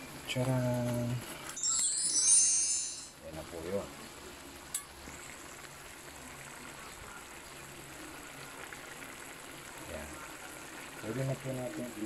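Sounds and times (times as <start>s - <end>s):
meat sizzling in a wok: 3.1s - 12.0s.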